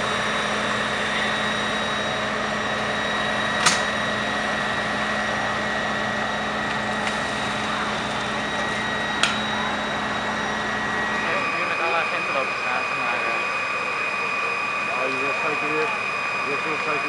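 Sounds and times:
fire engine pump humming: 0:00.0 - 0:17.0.

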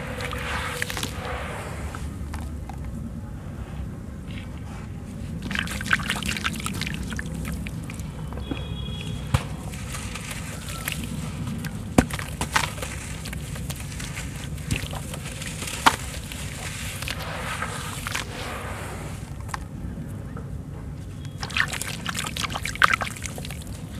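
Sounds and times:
gritty crunching: 0:00.0 - 0:02.9, 0:05.3 - 0:18.6
water sloshing and splashing: 0:00.0 - 0:02.9, 0:05.2 - 0:19.7, 0:21.3 - 0:23.9.

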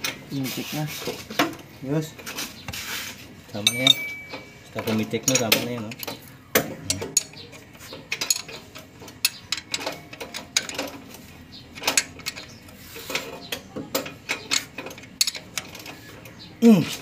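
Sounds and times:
wrench clinking against metal bolt: 0:03.6 - 0:07.4, 0:08.1 - 0:11.1.

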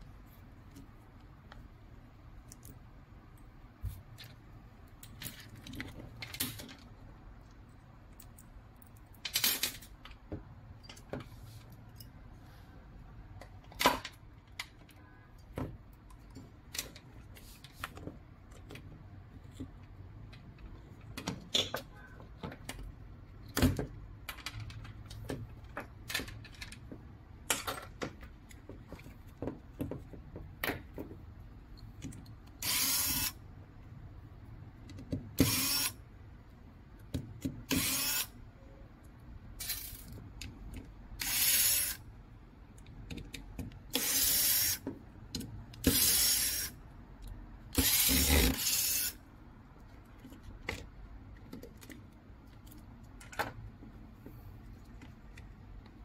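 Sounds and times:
parts and tools clicking and knocking: 0:04.0 - 0:12.2, 0:13.3 - 0:33.3, 0:34.7 - 0:35.9, 0:42.6 - 0:49.1, 0:49.8 - 0:56.0.

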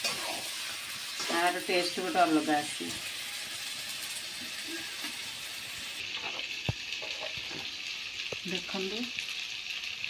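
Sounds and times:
chicken sizzling in oil: 0:00.0 - 0:10.0.

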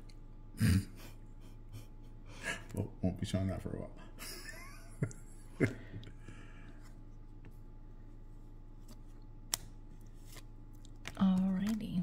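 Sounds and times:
cards rustling while shuffled: 0:08.7 - 0:12.0.

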